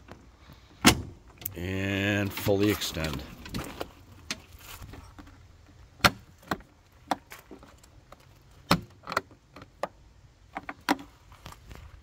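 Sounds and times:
metal latch clicks and clunks: 0:00.8 - 0:01.6.

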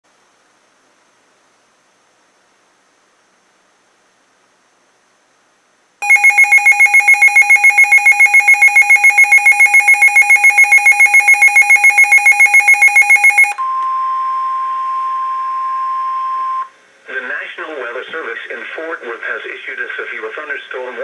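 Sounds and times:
rapid pulsing alert beeps: 0:06.0 - 0:13.6
steady single-tone alarm: 0:06.0 - 0:13.8.

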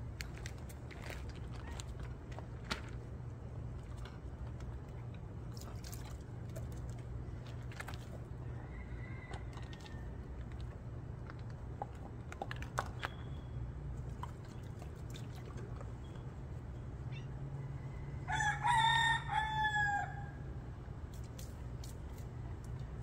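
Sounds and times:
steady low hum: 0:00.0 - 0:23.0
rooster crowing: 0:08.4 - 0:10.2, 0:17.5 - 0:20.5.

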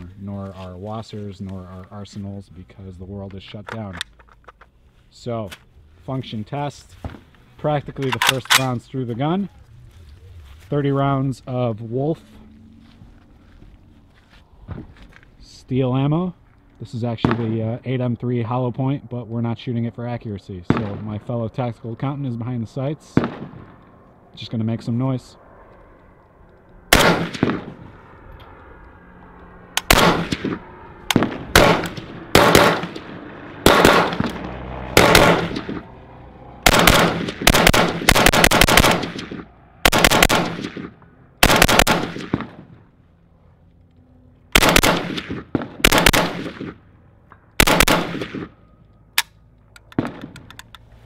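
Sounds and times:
rifle shots echoing: 0:20.6 - 0:21.4, 0:23.1 - 0:24.1, 0:26.9 - 0:28.0, 0:29.8 - 0:36.0, 0:36.6 - 0:42.8, 0:44.5 - 0:46.9, 0:47.6 - 0:48.6, 0:49.9 - 0:50.5.

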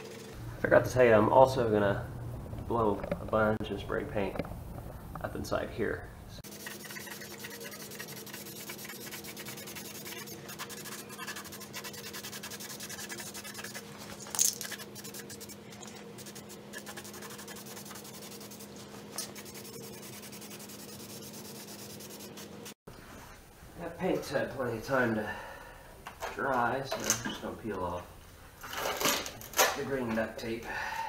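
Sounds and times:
low hum: 0:00.0 - 0:05.3
spray can hissing: 0:06.4 - 0:13.8, 0:14.6 - 0:15.6, 0:16.2 - 0:18.7.

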